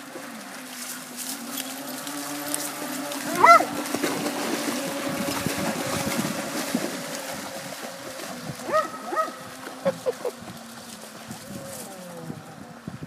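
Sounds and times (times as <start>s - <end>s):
dog splashing through water: 0.0s - 12.2s
toy boat motor whining: 0.0s - 12.9s
dog yelping: 3.3s - 3.7s, 8.7s - 10.3s.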